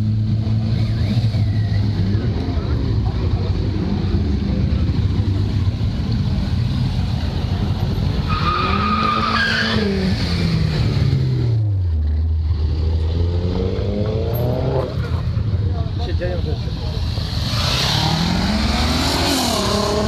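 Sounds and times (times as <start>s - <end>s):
motorcycle and car engines: 0.0s - 20.0s
tyre squeal: 8.2s - 10.2s.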